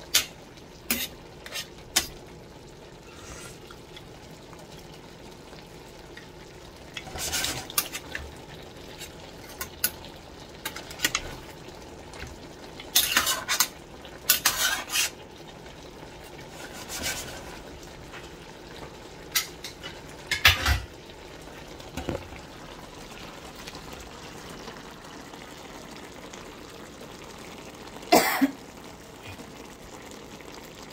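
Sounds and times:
faint simmer: 0.0s - 30.9s
utensil scraping a metal pot: 0.9s - 2.1s, 3.1s - 3.7s, 7.0s - 8.2s, 12.9s - 15.2s, 16.5s - 17.6s.

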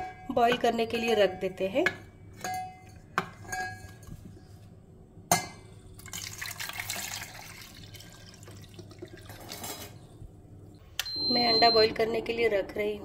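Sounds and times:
water pouring and splashing: 6.0s - 9.8s.

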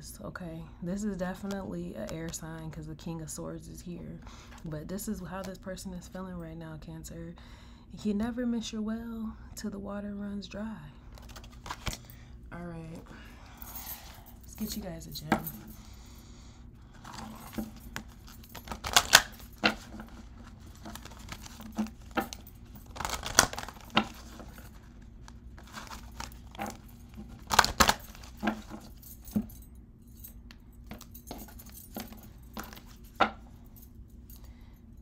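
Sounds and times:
cards being shuffled: 11.1s - 12.1s, 16.9s - 29.5s, 30.9s - 33.4s
metal bangles jangling: 13.5s - 16.0s, 16.9s - 24.8s, 25.6s - 35.0s.

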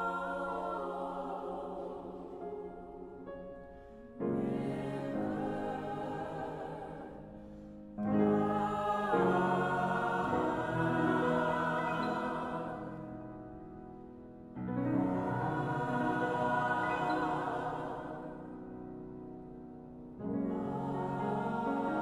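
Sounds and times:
mixed choir singing: 0.0s - 3.3s, 4.2s - 13.6s, 14.6s - 19.2s, 20.2s - 22.0s.

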